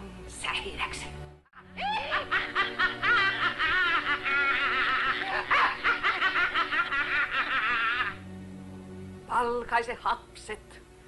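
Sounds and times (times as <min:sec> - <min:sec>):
high-pitched cackling laughter: 0:01.6 - 0:08.2.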